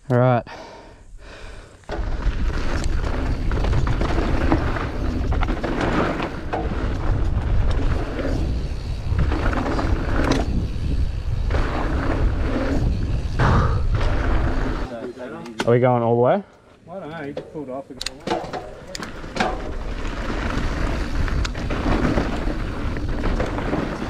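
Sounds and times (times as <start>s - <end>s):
bike tyres rolling over dirt: 1.7s - 15.9s, 17.0s - 24.0s
wind buffeting microphone: 6.4s - 14.8s
clicks and rattles: 17.4s - 19.8s.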